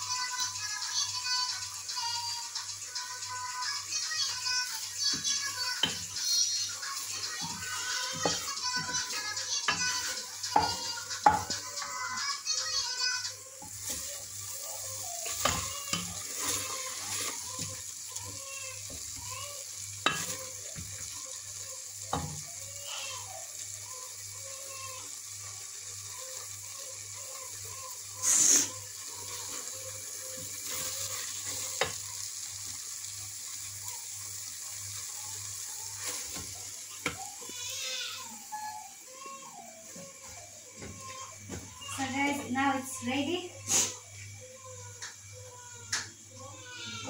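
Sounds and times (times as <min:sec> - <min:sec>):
food sizzling: 0:00.0 - 0:47.0
spoon knocking against pot: 0:10.5 - 0:11.6.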